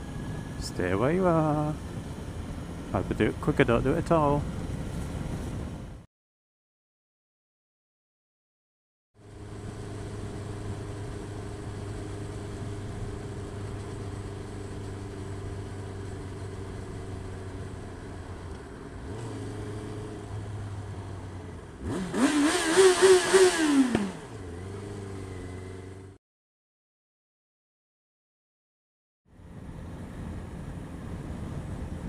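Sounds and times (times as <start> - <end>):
motorcycle engine running: 9.2 - 18.4
engine revving hard: 21.8 - 25.1.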